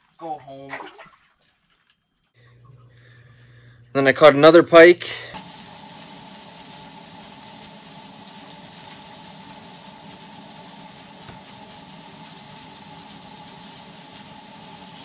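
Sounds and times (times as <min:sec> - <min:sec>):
faint hum: 0:02.2 - 0:08.9.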